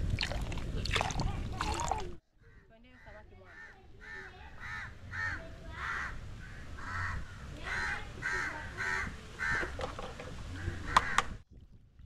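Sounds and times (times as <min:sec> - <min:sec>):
crow cawing: 0:02.5 - 0:09.8, 0:10.5 - 0:11.3.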